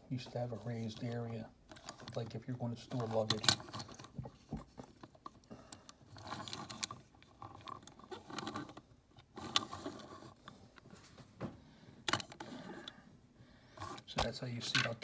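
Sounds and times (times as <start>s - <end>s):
toy cars clicking and scraping: 0.2s - 10.6s, 13.8s - 15.0s.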